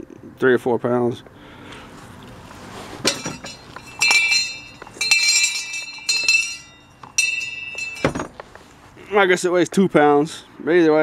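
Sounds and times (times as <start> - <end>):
hand bell ringing: 3.1 - 8.2.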